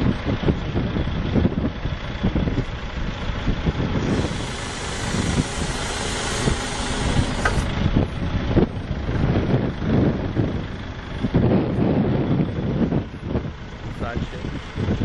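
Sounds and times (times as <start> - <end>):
forklift engine rumbling: 0.0 - 15.0
hiss: 4.0 - 7.7
wheels thumping on gravel: 4.0 - 7.9.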